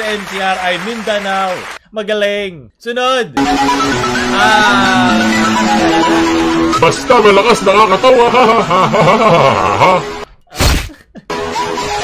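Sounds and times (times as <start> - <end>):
guitar music: 3.4 - 8.8.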